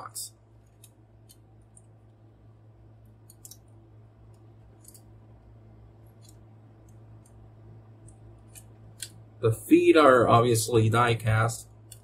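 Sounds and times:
low steady hum: 0:00.0 - 0:12.0
plastic parts clicking: 0:03.2 - 0:03.6.

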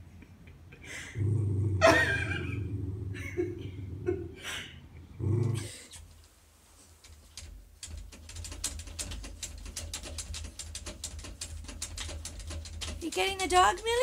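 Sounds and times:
claws scratching a mirror: 0:05.8 - 0:14.0.

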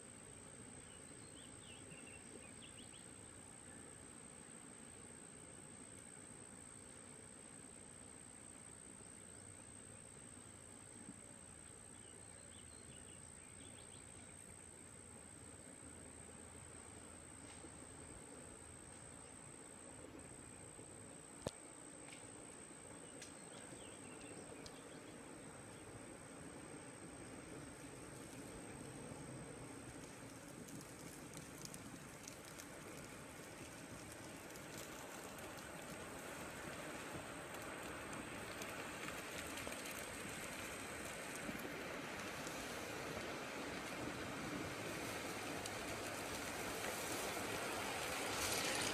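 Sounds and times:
outdoor hiss: 0:00.0 - 0:48.9
flood water rushing: 0:30.9 - 0:48.9.

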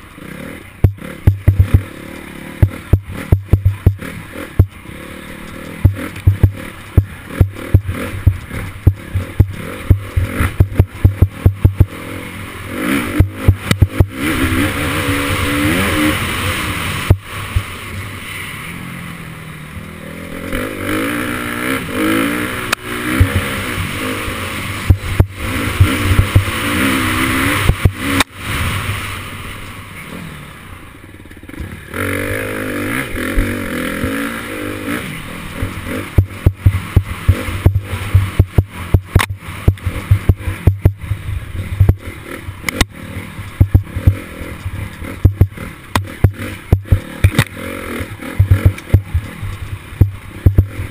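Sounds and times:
dirt bike engine revving: 0:00.0 - 0:50.9
sharp knocks and clatter: 0:43.5 - 0:47.6.

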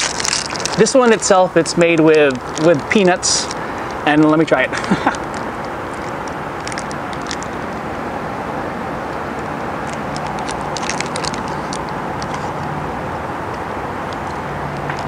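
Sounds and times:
wet chewing clicks: 0:00.0 - 0:07.7, 0:09.8 - 0:12.8
city traffic hum: 0:00.0 - 0:15.0.

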